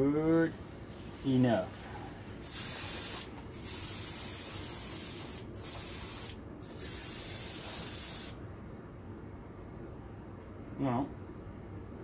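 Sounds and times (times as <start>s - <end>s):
airbrush spraying hiss: 2.4s - 8.4s.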